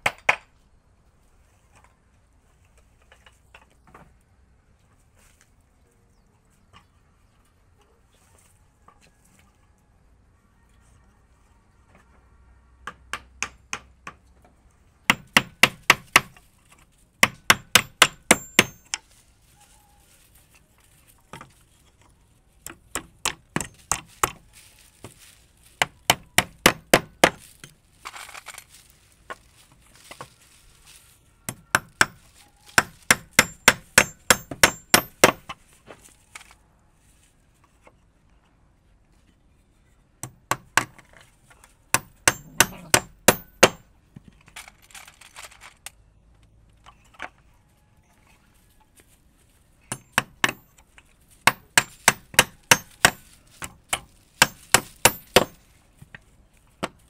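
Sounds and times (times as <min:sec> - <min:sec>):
hammer driving nails into wood: 0:15.1 - 0:16.4, 0:17.2 - 0:19.0, 0:25.8 - 0:27.4, 0:31.5 - 0:35.6, 0:41.9 - 0:43.8, 0:49.9 - 0:50.8, 0:51.4 - 0:55.6.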